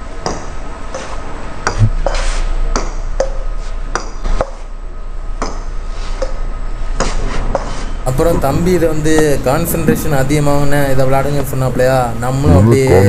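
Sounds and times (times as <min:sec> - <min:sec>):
table tennis ball hitting paddles: 0:01.7 - 0:04.6, 0:05.4 - 0:06.4
ball bouncing on table: 0:05.4 - 0:06.4.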